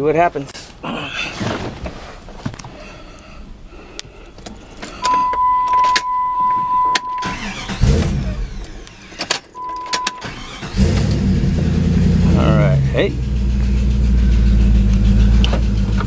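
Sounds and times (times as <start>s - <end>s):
keys clicking in ignition: 4.3s - 11.2s
electronic warning beep: 5.0s - 7.5s, 9.6s - 10.3s
engine cranking and starting: 7.0s - 12.5s, 13.2s - 16.0s.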